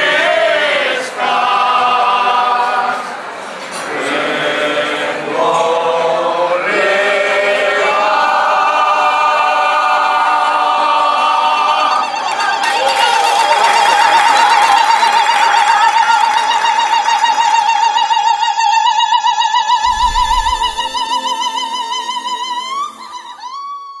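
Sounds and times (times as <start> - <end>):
soprano holding long note: 19.8 - 23.4.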